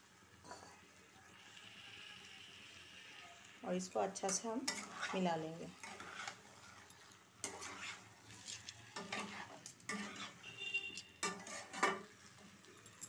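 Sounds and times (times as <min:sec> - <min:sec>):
metal spatula scraping pan: 0:04.2 - 0:12.3.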